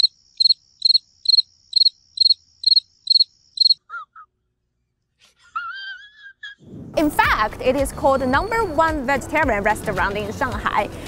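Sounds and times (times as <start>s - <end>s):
cricket chirping: 0.0s - 3.8s.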